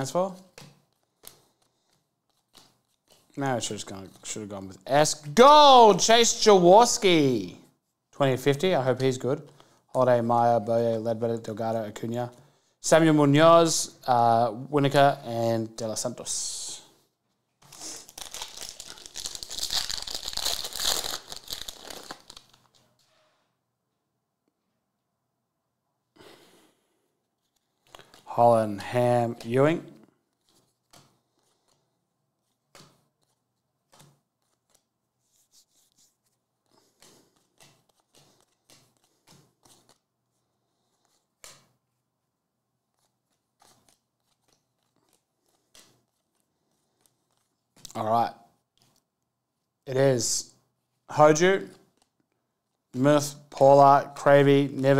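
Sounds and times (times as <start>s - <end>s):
foil wrapper tearing and crinkling: 17.7s - 22.8s
cards sliding off a stack: 36.7s - 40.0s.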